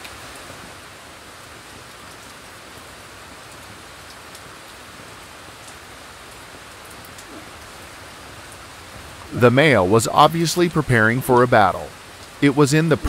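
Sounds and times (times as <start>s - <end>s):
outdoor weather hiss: 0.0s - 13.0s
faint light ticks: 3.5s - 4.5s.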